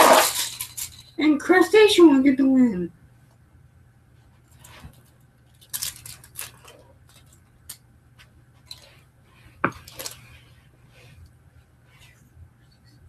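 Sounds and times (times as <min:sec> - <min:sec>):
plastic toy trucks clicking: 0:00.0 - 0:01.0
rustling on carpet: 0:08.2 - 0:13.0.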